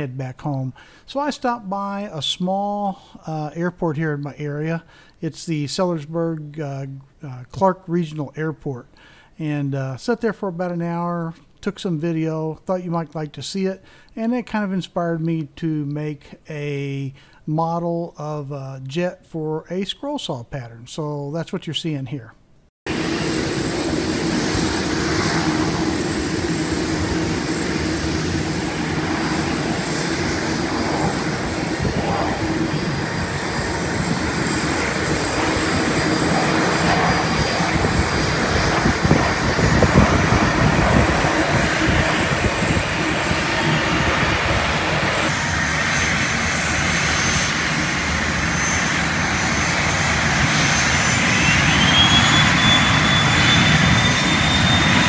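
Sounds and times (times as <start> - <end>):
high turbine whine: 22.9 - 55.0
jet engine rushing noise: 22.9 - 55.0.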